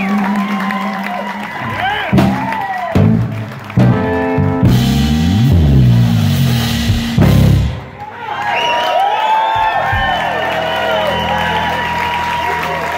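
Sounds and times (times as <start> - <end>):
live band playing a final chord: 1.8 - 7.9.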